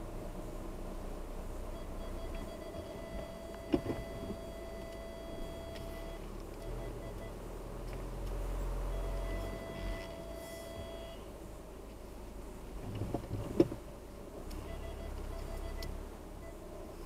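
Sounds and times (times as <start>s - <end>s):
car engine running low: 0.0s - 17.0s
steady electronic beep: 1.7s - 7.3s, 14.6s - 15.9s.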